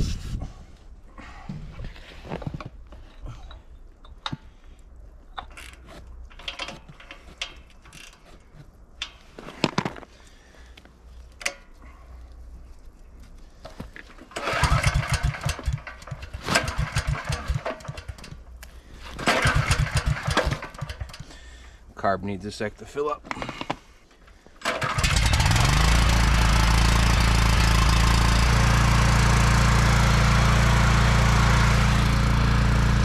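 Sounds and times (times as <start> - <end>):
clicks and knocks of tools: 5.3 - 10.0, 11.3 - 11.8
small engine cranking: 14.3 - 18.4, 19.2 - 21.3, 24.6 - 30.0.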